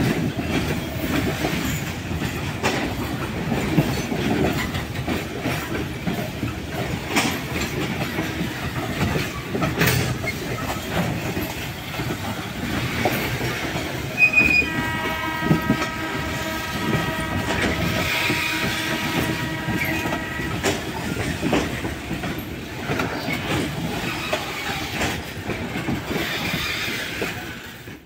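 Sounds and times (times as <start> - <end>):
wagon wheels clattering over rail joints: 0.0 - 27.9
locomotive horn: 14.2 - 21.2.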